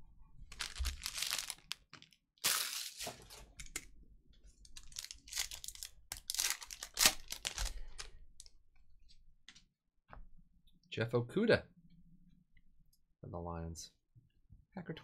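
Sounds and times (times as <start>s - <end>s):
foil card pack tearing: 0.5s - 3.3s, 4.8s - 7.8s.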